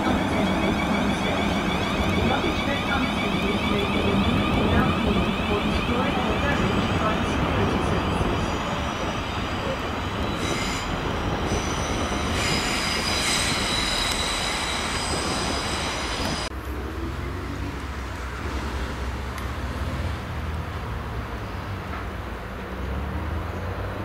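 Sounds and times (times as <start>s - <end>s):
high-pitched train squeal: 0.0s - 16.5s
train rumble: 0.0s - 23.4s
train approaching rumble: 0.0s - 24.0s.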